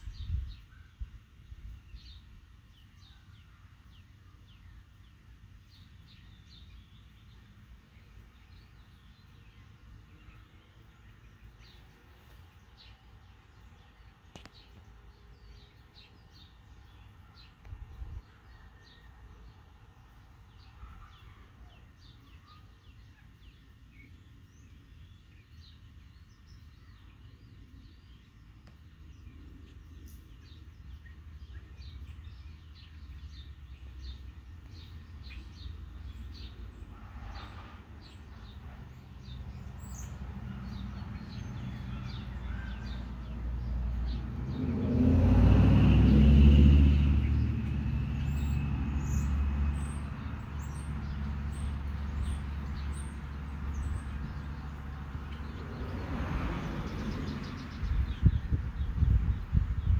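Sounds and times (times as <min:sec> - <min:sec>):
small birds chirping: 0:00.0 - 0:59.9
vehicle passing rumble: 0:22.9 - 0:59.9.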